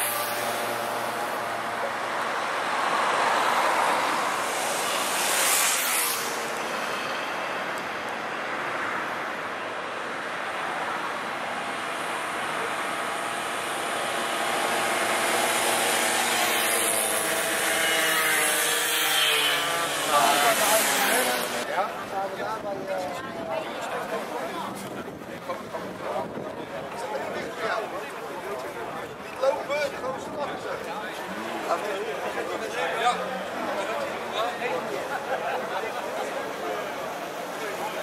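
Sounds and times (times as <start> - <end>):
mopeds buzzing past: 0.0 - 7.7, 11.8 - 21.6.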